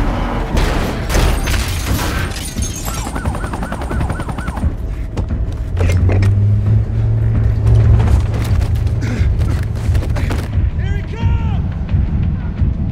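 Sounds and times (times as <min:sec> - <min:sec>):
heavy crashing and metal impacts: 0:00.4 - 0:03.1
police siren wailing: 0:02.8 - 0:04.8
deep engine drone: 0:05.4 - 0:10.0.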